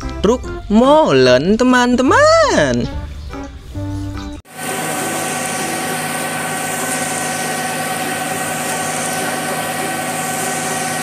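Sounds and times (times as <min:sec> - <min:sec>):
diesel truck engine running: 0:04.4 - 0:11.0
steady whine: 0:04.5 - 0:11.0.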